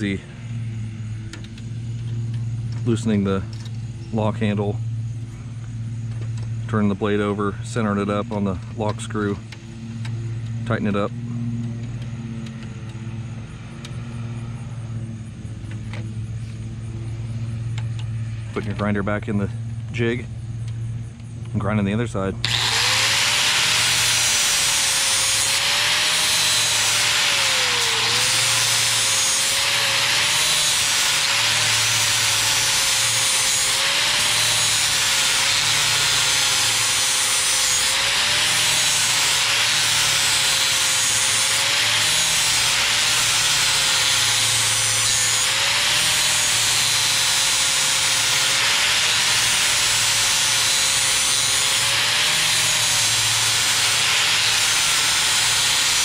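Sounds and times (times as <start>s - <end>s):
angle grinder grinding steel: 22.4s - 56.0s.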